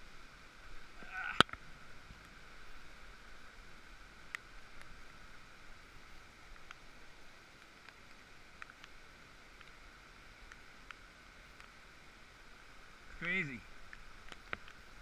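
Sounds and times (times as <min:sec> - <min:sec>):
rainforest background hiss: 0:00.0 - 0:15.0
light clicks and taps: 0:06.5 - 0:06.9, 0:07.5 - 0:09.8, 0:13.8 - 0:14.9.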